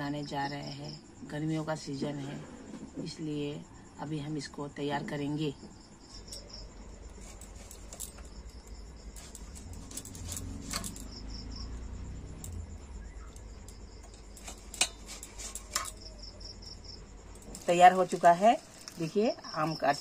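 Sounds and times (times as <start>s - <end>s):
crickets chirping: 0.0s - 20.0s
low steady hum: 0.0s - 20.0s
knife cutting over steel bowl: 9.0s - 11.0s, 14.1s - 16.1s.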